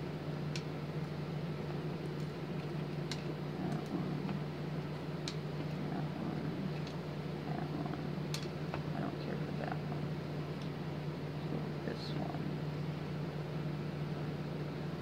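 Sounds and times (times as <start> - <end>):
fan humming: 0.0 - 15.0.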